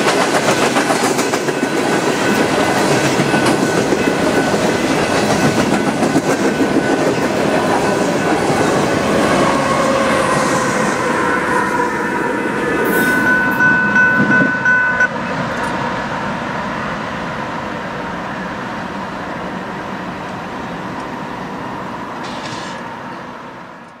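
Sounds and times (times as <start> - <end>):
train rumbling and rattling: 0.0 - 24.0
high squeal tones: 7.6 - 15.1.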